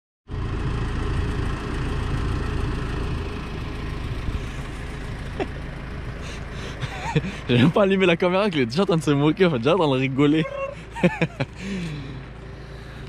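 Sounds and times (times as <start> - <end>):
pickup engine idling: 0.3 - 13.0.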